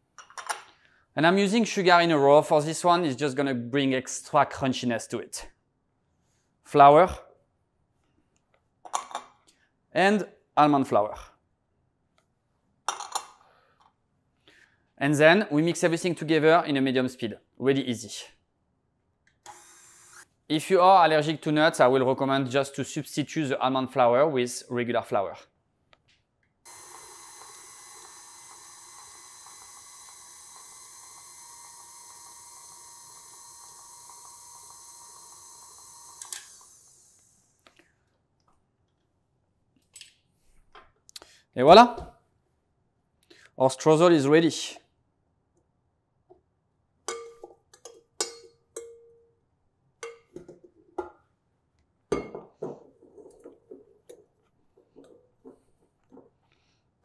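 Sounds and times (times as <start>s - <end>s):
stand mixer motor whining: 26.7s - 37.4s.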